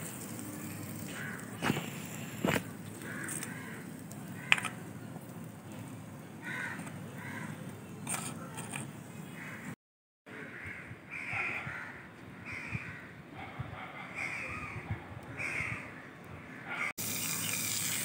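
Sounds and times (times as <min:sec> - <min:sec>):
crow cawing: 0:01.1 - 0:01.5, 0:03.0 - 0:04.8, 0:06.4 - 0:07.6, 0:10.4 - 0:13.1, 0:15.4 - 0:16.9.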